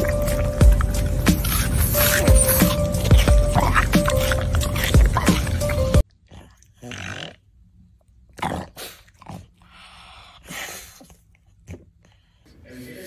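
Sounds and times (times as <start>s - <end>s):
loud music: 0.0s - 6.0s
pug breathy snorts: 0.0s - 7.4s, 8.4s - 12.2s.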